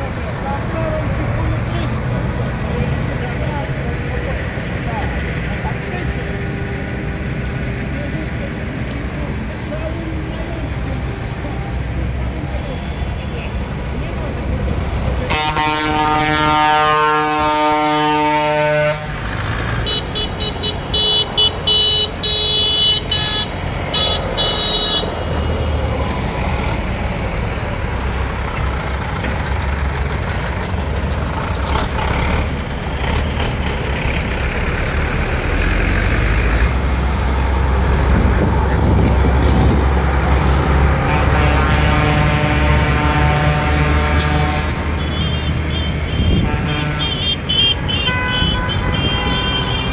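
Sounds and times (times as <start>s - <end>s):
tractor diesel engine passing: 0.0s - 49.9s
long vehicle horn blast: 15.2s - 19.2s, 19.8s - 25.2s, 41.0s - 49.9s.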